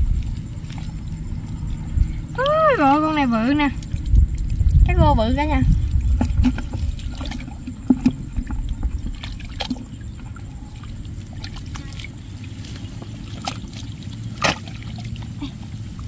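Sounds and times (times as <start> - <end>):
steady low rumble: 0.0 - 16.0
hands squelching through mud: 5.6 - 16.0
loud splash: 13.2 - 15.2.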